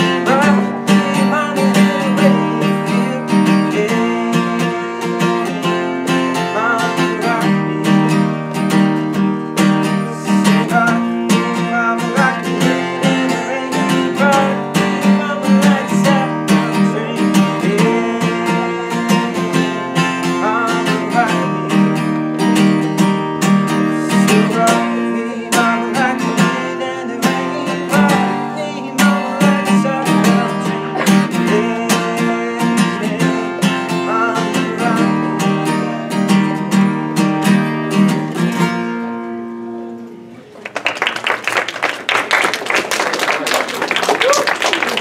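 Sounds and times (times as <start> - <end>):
man singing: 0.0 - 8.6, 9.6 - 22.8, 23.4 - 36.8
acoustic guitar strumming: 0.0 - 40.5
people clapping: 40.4 - 45.0.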